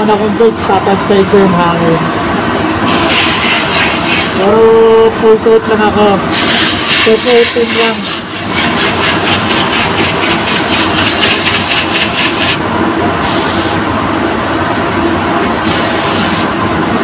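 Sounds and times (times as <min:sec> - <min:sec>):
spray booth air noise: 0:02.8 - 0:04.7, 0:06.3 - 0:14.0, 0:15.6 - 0:16.7
paint spray gun hissing: 0:02.9 - 0:04.4, 0:06.3 - 0:12.6, 0:13.2 - 0:13.8, 0:15.6 - 0:16.5.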